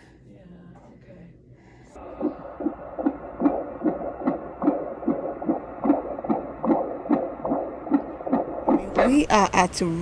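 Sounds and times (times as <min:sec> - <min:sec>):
fast fetal heartbeat pulse: 0:02.0 - 0:09.0
steady hum: 0:02.0 - 0:10.0.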